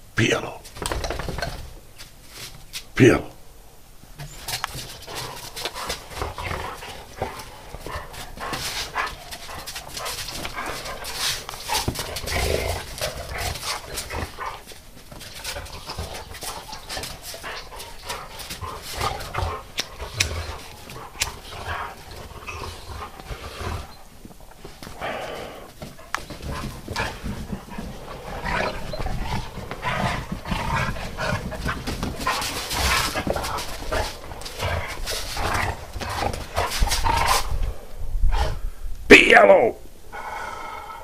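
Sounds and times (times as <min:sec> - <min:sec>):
dogs scuffling in snow: 0:04.3 - 0:24.0, 0:24.6 - 0:37.6
dogs vocalising: 0:04.3 - 0:24.1, 0:26.0 - 0:37.8.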